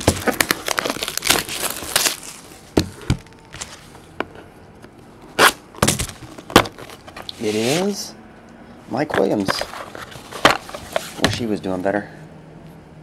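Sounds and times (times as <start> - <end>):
cellophane crinkling and tearing: 0.0 - 2.6.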